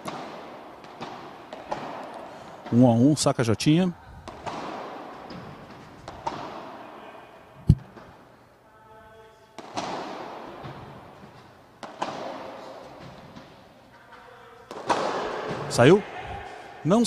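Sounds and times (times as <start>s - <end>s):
padel ball hit by rackets: 0.0s - 2.1s, 4.2s - 6.8s, 9.6s - 11.0s, 11.8s - 12.8s, 14.7s - 15.6s.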